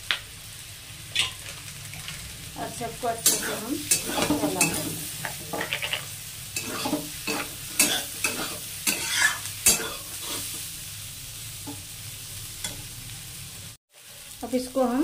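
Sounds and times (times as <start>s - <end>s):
vegetables sizzling: 0.0s - 15.0s
metal spatula scraping pan: 3.2s - 10.6s.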